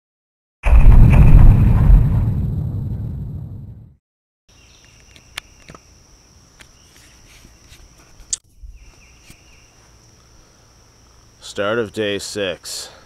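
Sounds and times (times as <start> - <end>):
high-pitched insect chorus: 4.5 - 13.0.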